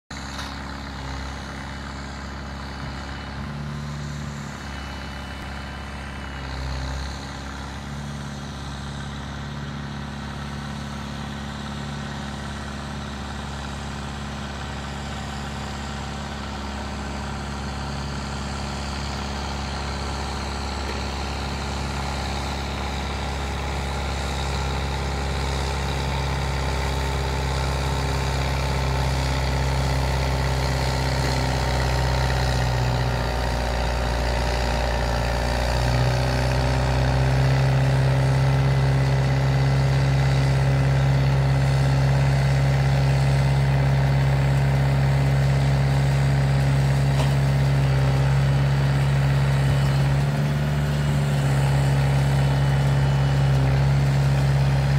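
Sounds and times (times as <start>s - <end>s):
tractor diesel engine under load: 0.0s - 54.9s
round baler working: 0.1s - 54.9s.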